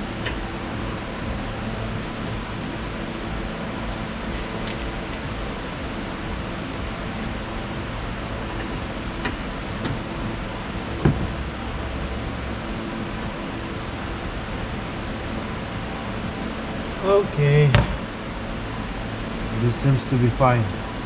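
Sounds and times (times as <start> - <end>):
background hum and hiss: 0.0 - 21.0.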